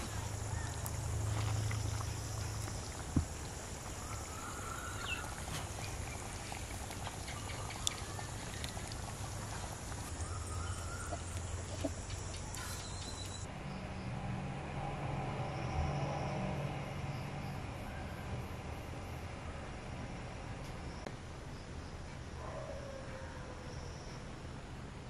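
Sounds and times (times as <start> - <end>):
curry simmering in a pot: 0.0 - 12.3
bird calls: 0.0 - 13.5
low steady hum: 0.0 - 22.5.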